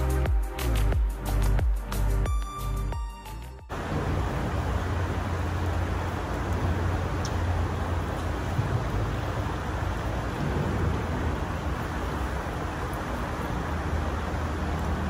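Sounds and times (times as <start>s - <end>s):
creek flowing over gravel: 3.7s - 15.0s.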